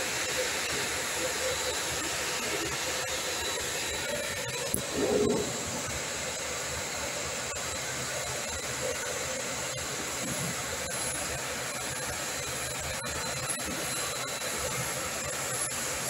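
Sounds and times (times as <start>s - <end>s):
crane hoist whirring: 3.1s - 8.1s.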